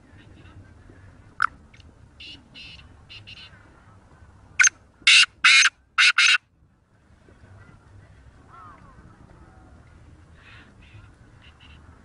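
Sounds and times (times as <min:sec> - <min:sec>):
francolin calling: 0:04.6 - 0:06.4.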